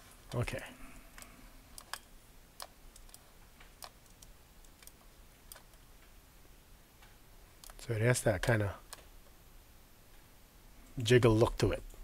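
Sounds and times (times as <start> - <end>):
keyboard and mouse clicks: 1.2 - 5.8.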